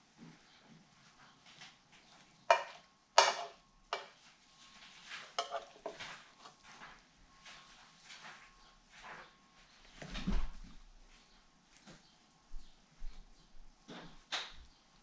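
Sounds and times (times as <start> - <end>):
utensil knocking and scraping skillet: 2.5 - 4.2, 5.2 - 6.6.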